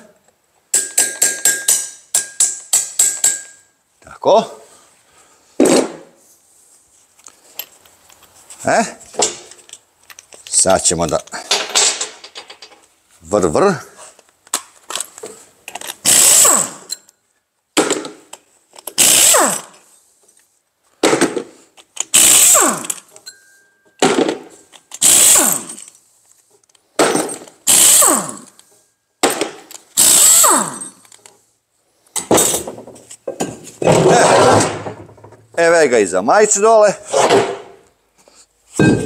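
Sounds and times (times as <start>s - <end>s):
pneumatic impact wrench hammering: 0.8s - 3.5s, 15.8s - 17.0s, 17.8s - 19.8s, 21.0s - 23.2s, 24.0s - 25.9s, 27.0s - 31.2s.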